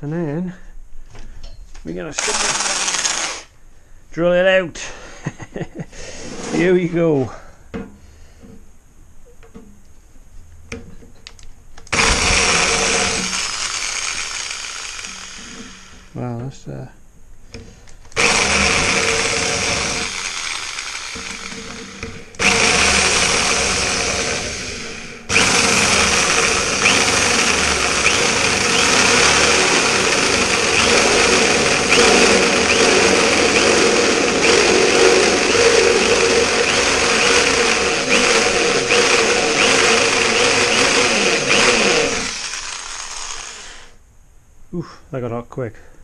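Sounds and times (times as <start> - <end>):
electric drill cutting steel sheet: 2.2 - 3.5, 11.9 - 16.1, 18.2 - 44.0.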